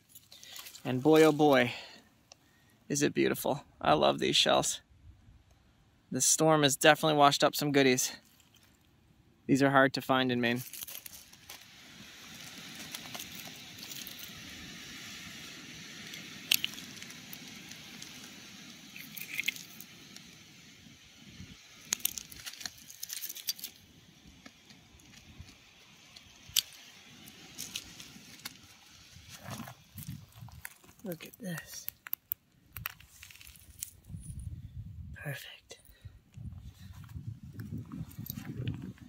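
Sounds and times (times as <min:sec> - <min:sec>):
wind: 0:00.0 - 0:39.0
surf on pebble beach: 0:10.2 - 0:31.9
shells and stones clicking: 0:10.6 - 0:20.4, 0:21.7 - 0:28.7, 0:30.0 - 0:34.0.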